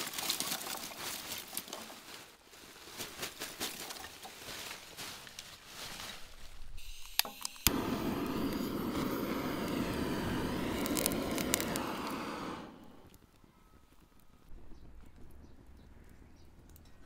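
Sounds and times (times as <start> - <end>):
charcoal clattering in a grill: 0.0 - 6.3
sharp clicks: 7.0 - 17.0
blowtorch roaring: 7.6 - 13.2.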